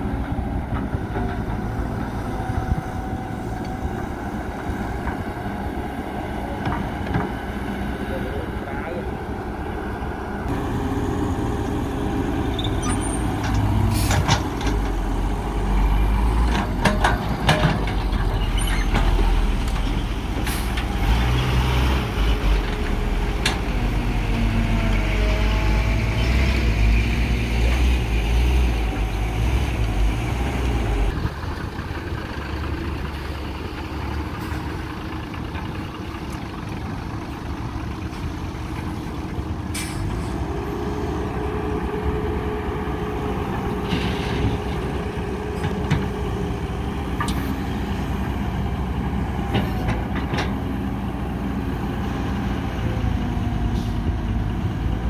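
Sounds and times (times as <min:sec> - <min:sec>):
excavator diesel engine: 0:00.0 - 0:55.0.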